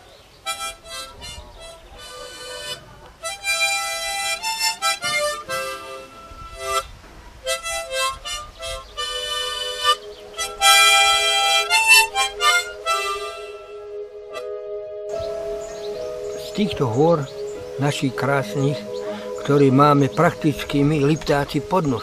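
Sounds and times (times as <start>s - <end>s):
harmonica melody: 0.4s - 22.0s.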